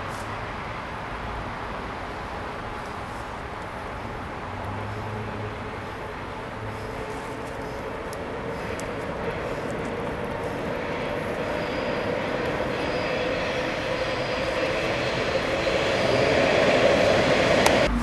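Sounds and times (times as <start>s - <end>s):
steady mechanical drone: 5.2s - 18.0s.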